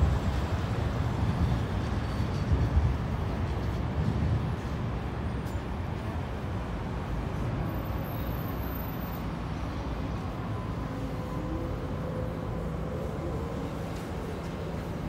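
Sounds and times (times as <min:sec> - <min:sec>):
city traffic noise: 0:00.0 - 0:15.0.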